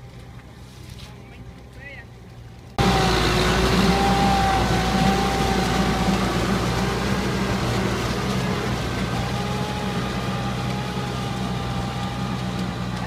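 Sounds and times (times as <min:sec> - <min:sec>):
tractor engine droning: 0:00.0 - 0:13.0.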